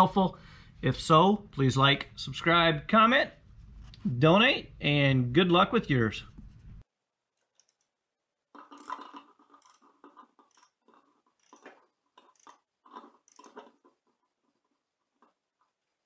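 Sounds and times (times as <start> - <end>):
ratchet wrench clicking: 8.7 - 9.8, 10.4 - 10.7, 11.4 - 12.6, 13.3 - 13.6.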